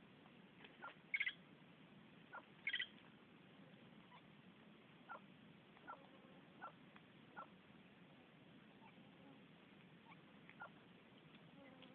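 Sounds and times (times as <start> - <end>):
birds calling: 0.7 - 1.4, 2.3 - 3.0, 10.0 - 11.9
harsh bird calls: 0.8 - 1.4, 2.3 - 2.9.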